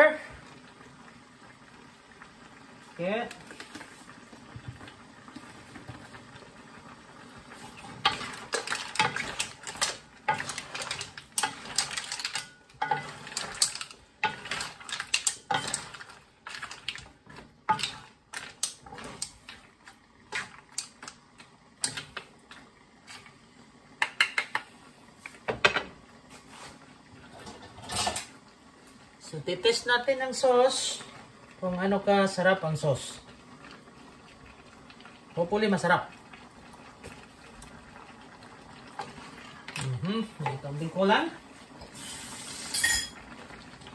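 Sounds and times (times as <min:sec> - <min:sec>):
spatula stirring shells in a wok: 0:07.3 - 0:24.6, 0:38.9 - 0:43.1.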